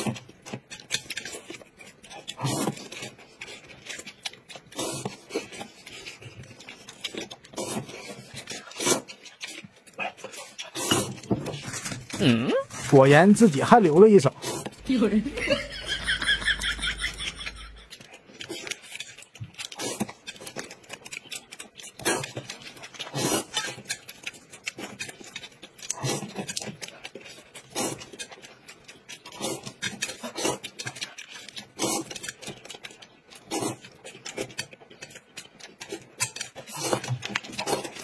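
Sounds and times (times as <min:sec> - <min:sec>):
eggs chewed: 0:00.0 - 0:38.0
noodles slurped and chewed: 0:00.0 - 0:38.0.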